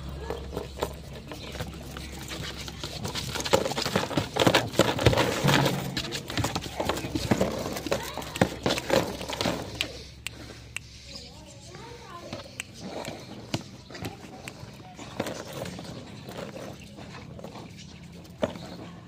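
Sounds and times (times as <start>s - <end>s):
dog legs and chain clattering: 0.0s - 9.8s.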